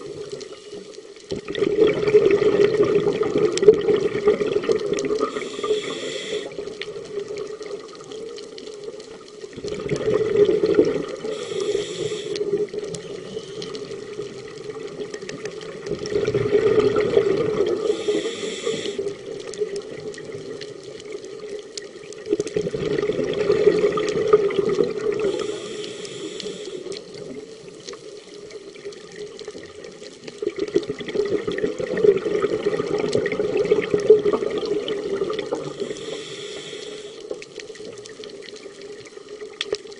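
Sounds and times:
gurgling exhaled bubbles: 0.0 - 39.9
regulator inhale hiss: 5.2 - 6.8, 11.2 - 14.1, 17.7 - 19.4, 25.2 - 27.3, 35.5 - 37.6.

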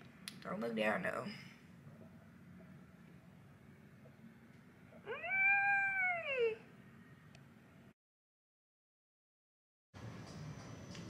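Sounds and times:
low steady background hum: 0.0 - 8.0.

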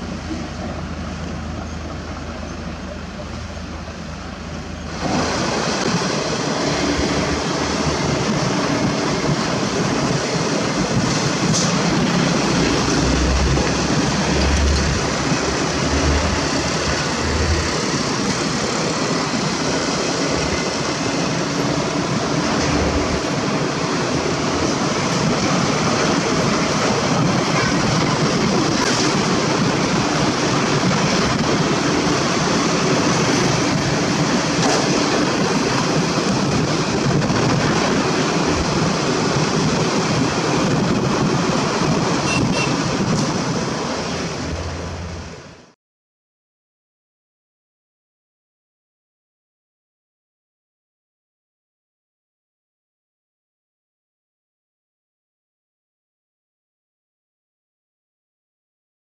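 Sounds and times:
engine hum: 0.0 - 45.7
low rumbling gusts: 0.0 - 45.7
wind rushing over microphone: 4.8 - 45.7.

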